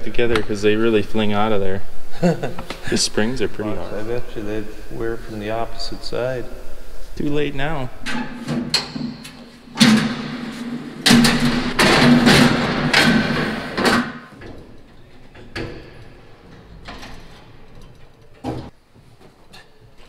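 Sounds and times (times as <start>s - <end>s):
metal ladder clanking and rattling: 8.1s - 18.7s.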